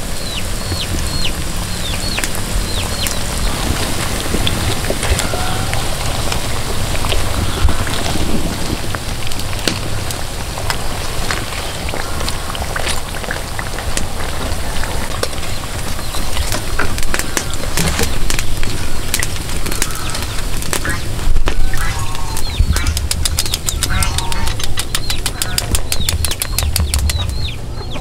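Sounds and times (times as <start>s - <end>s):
fritters deep-frying in oil: 0.0s - 27.7s
low rumble: 0.0s - 28.0s.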